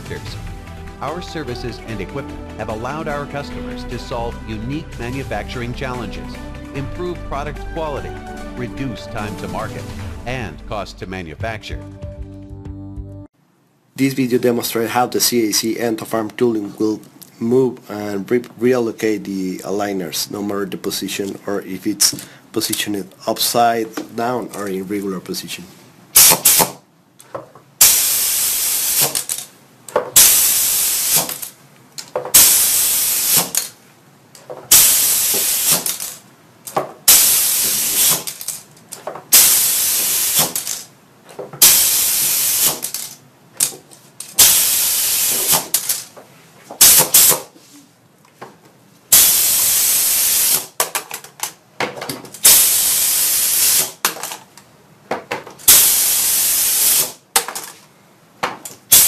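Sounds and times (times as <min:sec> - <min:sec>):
compressed air hissing bursts: 0:26.2 - 0:26.7, 0:27.8 - 0:29.2, 0:30.2 - 0:31.4, 0:32.3 - 0:33.6, 0:34.7 - 0:36.1, 0:37.1 - 0:38.4, 0:39.3 - 0:40.7, 0:41.6 - 0:42.9, 0:44.4 - 0:45.8, 0:46.8 - 0:47.5, 0:49.1 - 0:50.7, 0:52.4 - 0:54.0, 0:55.7 - 0:57.2.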